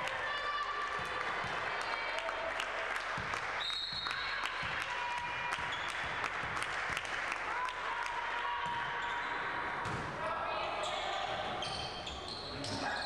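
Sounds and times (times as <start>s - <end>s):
clapping: 0.0s - 8.2s
crowd noise: 0.0s - 13.0s.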